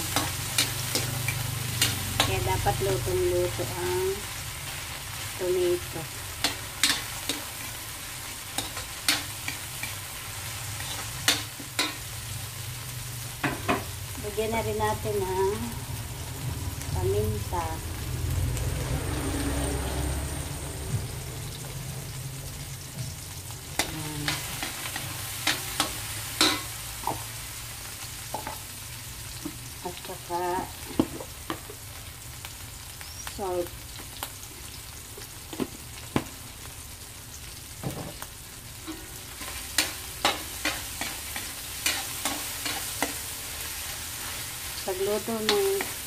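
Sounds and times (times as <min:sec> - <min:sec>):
vegetables sizzling in a wok: 0:00.0 - 0:46.0
metal spatula scraping a pan: 0:06.3 - 0:12.1, 0:23.8 - 0:27.2, 0:38.8 - 0:46.0.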